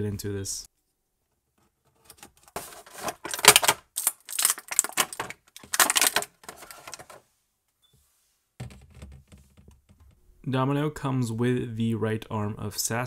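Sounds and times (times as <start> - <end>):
plastic and cardboard packaging crackling: 2.0 - 7.2.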